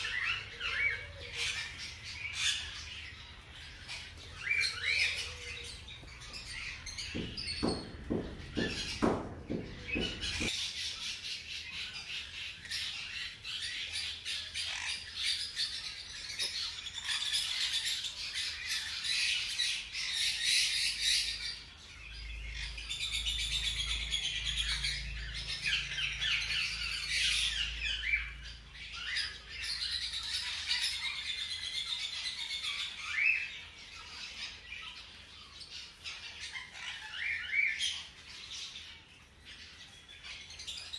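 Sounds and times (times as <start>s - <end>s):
low thumps: 7.0s - 10.5s.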